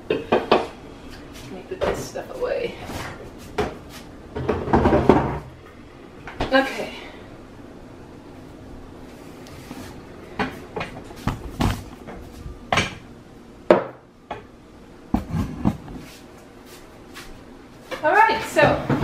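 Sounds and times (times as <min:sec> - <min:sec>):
household knocks and clatters: 0:04.4 - 0:05.5, 0:15.1 - 0:16.0.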